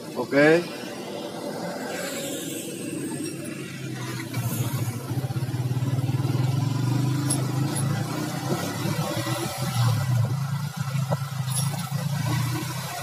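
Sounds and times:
motorcycle engine running: 0:04.1 - 0:13.0.

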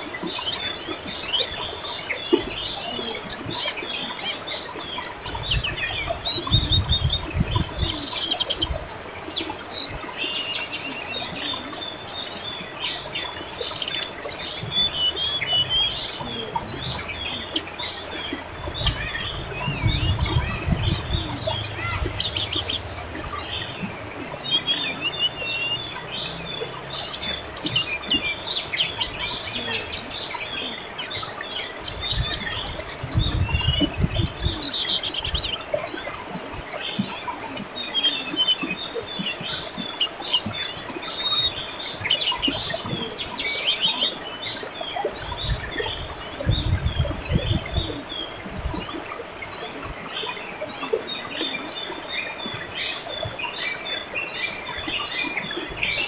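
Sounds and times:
babbling river: 0:00.0 - 0:56.0
birds chirping and trilling: 0:00.0 - 0:56.0
low rumbles: 0:14.6 - 0:30.1.

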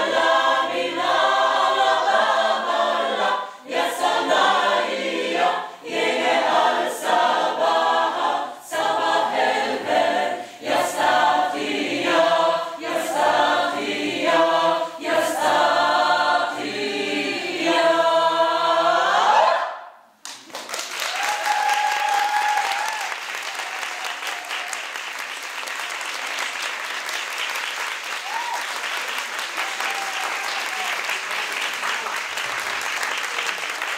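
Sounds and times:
mixed choir singing a cappella: 0:00.0 - 0:20.0
audience applauding: 0:20.2 - 0:33.9.

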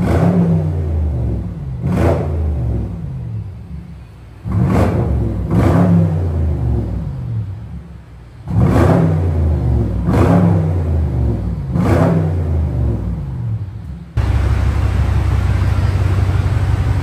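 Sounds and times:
car engine revving: 0:00.0 - 0:17.0
low engine idle rumble: 0:12.7 - 0:17.0.

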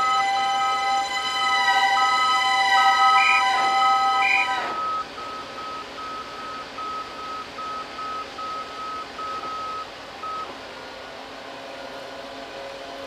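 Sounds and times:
loud horn blast: 0:00.0 - 0:04.8
vehicle reversing alarm beeping: 0:00.0 - 0:10.5.

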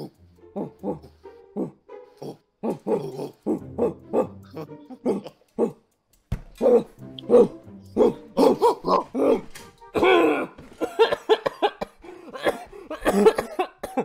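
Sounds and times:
person imitating dog barks: 0:00.0 - 0:05.9, 0:06.6 - 0:09.4
background music: 0:00.0 - 0:14.0.

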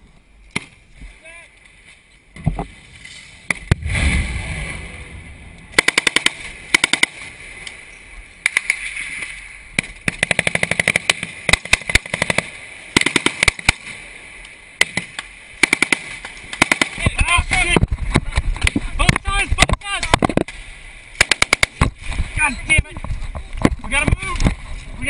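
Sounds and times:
loud low rumble: 0:03.7 - 0:05.8
automatic gunfire bursts: 0:05.8 - 0:07.2, 0:10.1 - 0:13.9, 0:15.6 - 0:17.0, 0:21.2 - 0:21.8.

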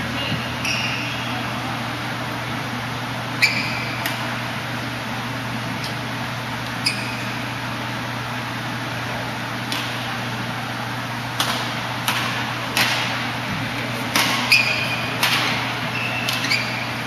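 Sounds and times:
steady low hum: 0:00.0 - 0:17.0
shoes squeaking on court: 0:00.2 - 0:01.4, 0:03.4 - 0:04.4, 0:05.8 - 0:07.7, 0:14.0 - 0:17.0
racket striking shuttlecock: 0:09.6 - 0:10.1, 0:11.3 - 0:13.2, 0:14.0 - 0:16.9.

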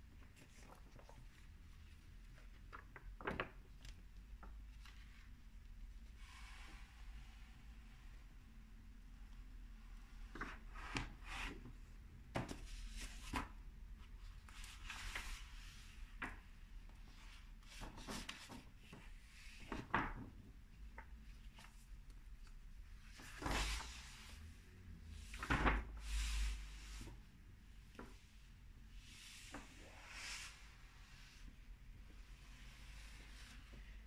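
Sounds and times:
paper rustling: 0:00.2 - 0:05.4.

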